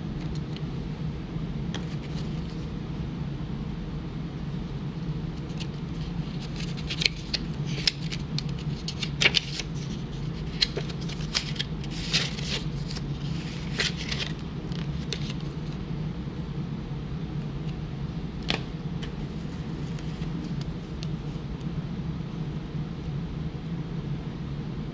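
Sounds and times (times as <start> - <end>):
steady low hum: 0.0 - 24.9
paper pages rustling: 1.7 - 2.7, 5.4 - 15.8, 18.4 - 21.1.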